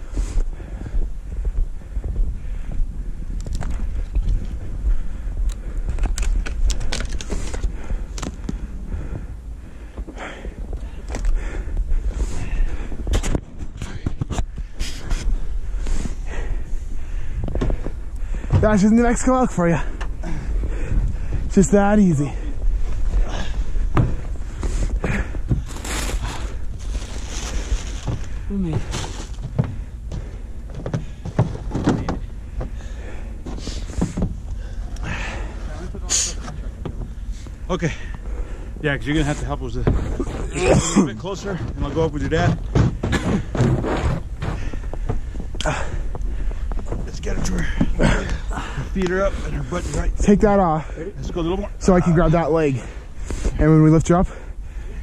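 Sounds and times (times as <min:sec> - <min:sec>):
wind rumble on microphone: 0:00.0 - 0:40.6
rustling: 0:20.4 - 0:40.6
footsteps crunching through snow: 0:24.2 - 0:30.3
boots thumping on truck bed: 0:28.1 - 0:32.8, 0:41.6 - 0:45.6.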